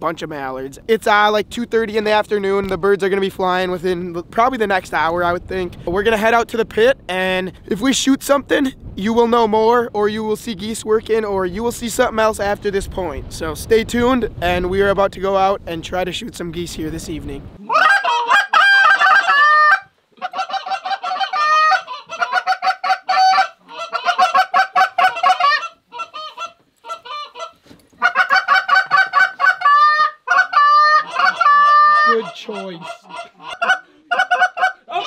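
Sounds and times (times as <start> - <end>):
goose calls clucking and honking: 17.6 - 35.0.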